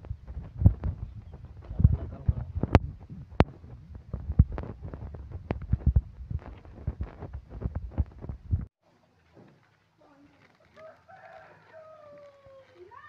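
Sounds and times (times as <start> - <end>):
phone microphone being rubbed and knocked: 0.0 - 8.7.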